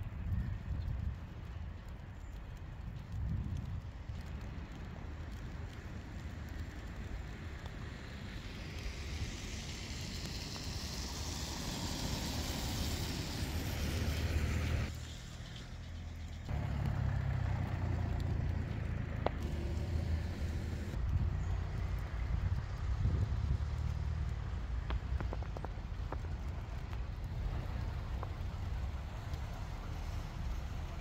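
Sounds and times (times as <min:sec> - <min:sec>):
wind rumble on microphone: 0:00.0 - 0:14.9, 0:18.0 - 0:31.0
car tyres passing: 0:07.4 - 0:31.0.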